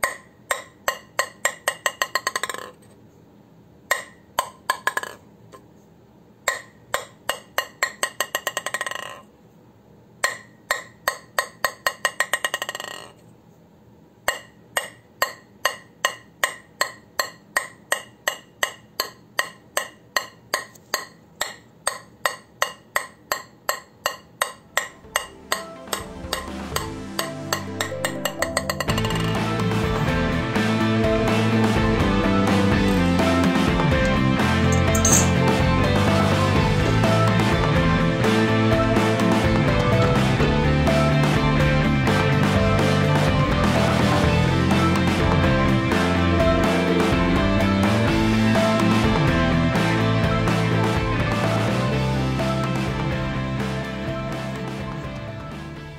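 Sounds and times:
wooden blade tapping clicks: 0:00.0 - 0:02.7, 0:06.5 - 0:08.8, 0:10.2 - 0:12.7, 0:14.3 - 0:26.4
music: 0:24.6 - 0:55.9.

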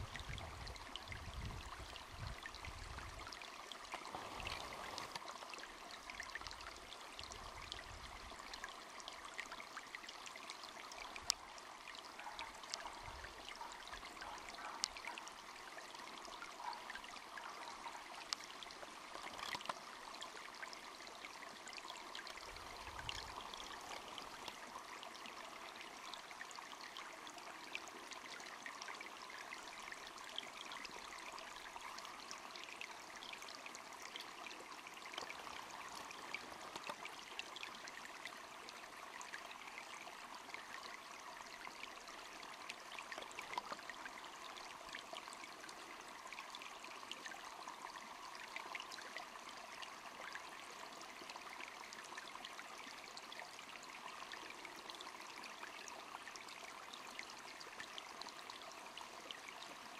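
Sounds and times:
small clicks: 0:19.2 - 0:19.8.

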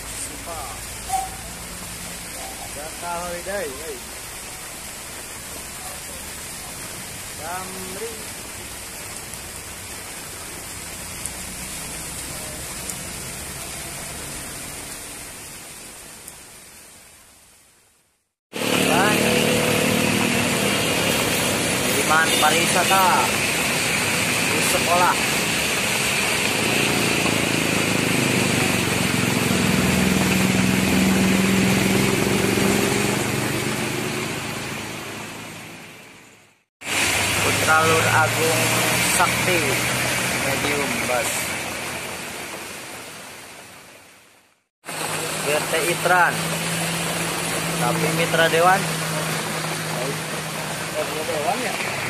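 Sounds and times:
tyres hissing through water: 0:00.0 - 0:17.0, 0:18.5 - 0:35.8, 0:36.8 - 0:44.1, 0:44.8 - 0:52.0
heavy rain on road: 0:00.0 - 0:17.6, 0:18.5 - 0:52.0
vehicle engine droning past: 0:18.6 - 0:22.1, 0:25.4 - 0:35.9.

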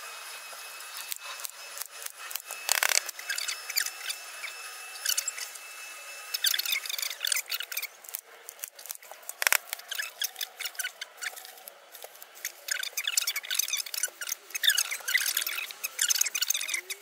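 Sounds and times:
paper crackling and rustling: 0:00.6 - 0:03.8, 0:06.9 - 0:15.6.

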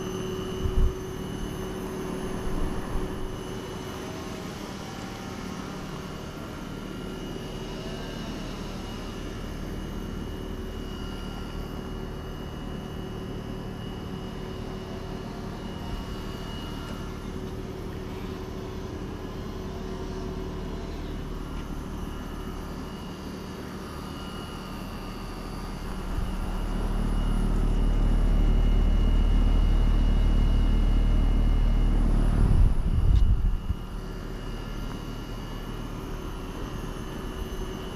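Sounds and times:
fan air noise: 0:00.0 - 0:06.5, 0:15.6 - 0:37.9
compressor hum: 0:00.0 - 0:37.9.

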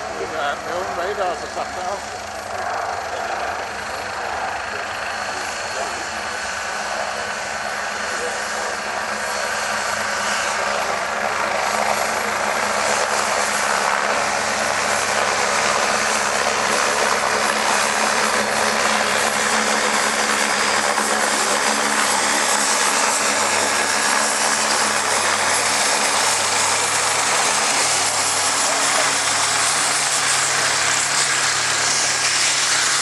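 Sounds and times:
helicopter turbine and rotors: 0:00.0 - 0:33.0.

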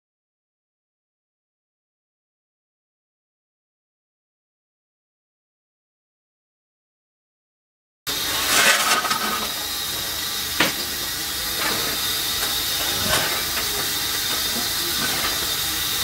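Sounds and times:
steam hissing: 0:08.1 - 0:16.0.

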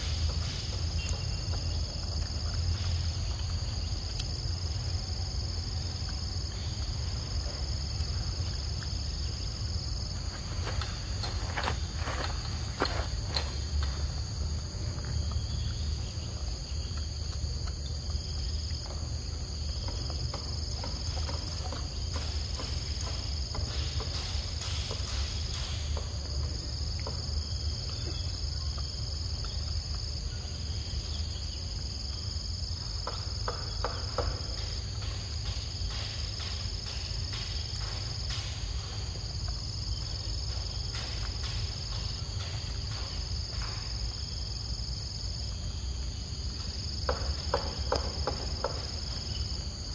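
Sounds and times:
high-pitched insect chorus: 0:00.0 - 0:49.9
monkey chewing clicks: 0:16.8 - 0:20.3.

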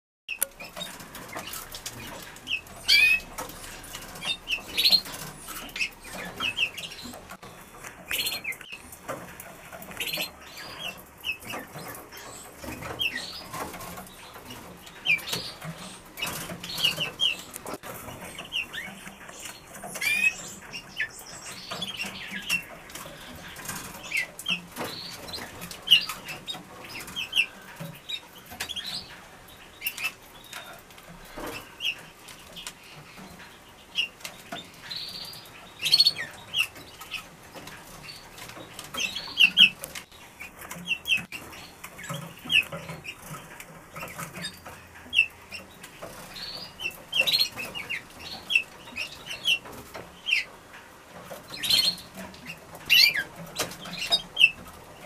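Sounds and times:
high bird chirps: 0:18.3 - 0:30.8.

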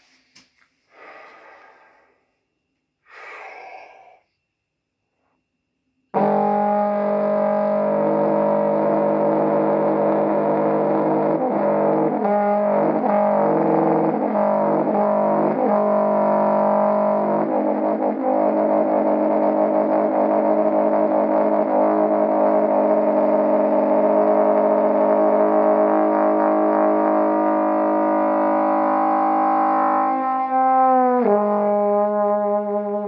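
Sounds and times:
distorted trombone notes: 0:06.1 - 0:33.0.

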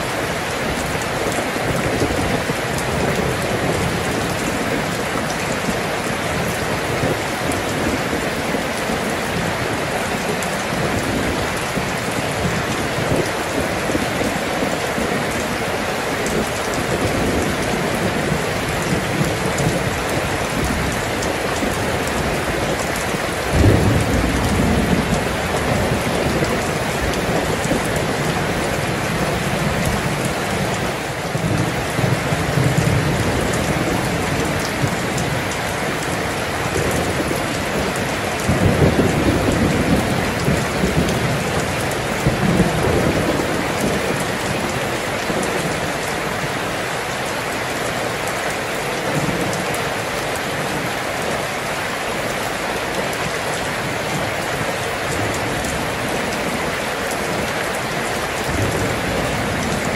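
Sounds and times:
steady rainfall: 0:00.0 - 0:59.9
low rumble of thunder: 0:16.2 - 0:30.3, 0:31.3 - 0:44.5.

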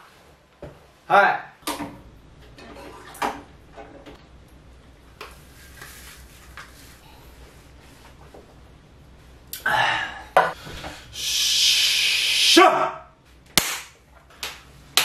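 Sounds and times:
long breathy hissing exhale: 0:11.1 - 0:12.6
sharp smack: 0:13.6 - 0:15.0.

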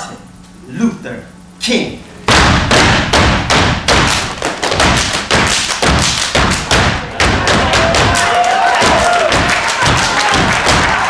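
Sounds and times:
stomps and claps on wooden stage: 0:02.3 - 0:11.0.

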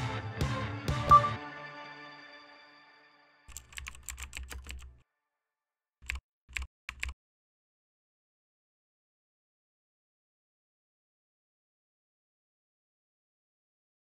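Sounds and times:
music note ringing: 0:01.1 - 0:01.7
keyboard typing: 0:03.5 - 0:05.0, 0:06.0 - 0:07.2.

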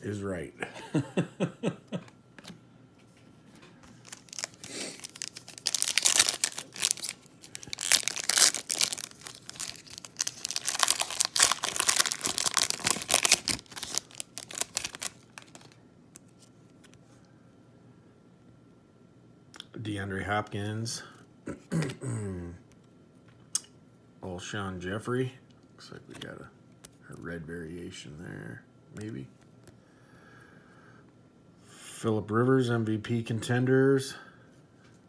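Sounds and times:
wrapper tearing and crinkling: 0:03.9 - 0:16.4.

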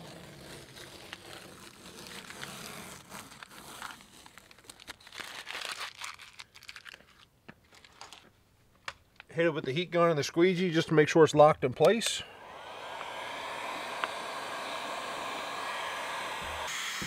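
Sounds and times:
masking tape peeling crinkling: 0:00.0 - 0:08.4.

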